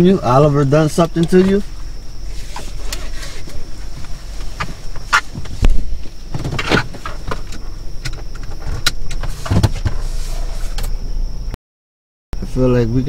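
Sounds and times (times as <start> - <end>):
faint high whine: 0.0 - 11.6, 12.4 - 13.0
low hum: 0.0 - 11.6.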